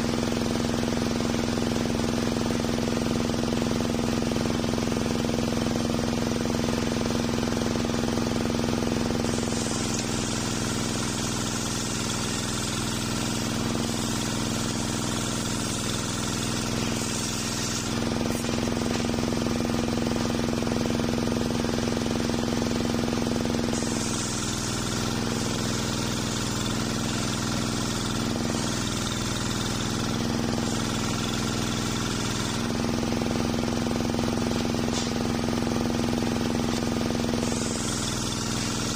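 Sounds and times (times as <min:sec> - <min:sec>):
saw motor humming: 0:00.0 - 0:38.9
saw blade ripping log: 0:09.0 - 0:20.5, 0:34.5 - 0:38.9.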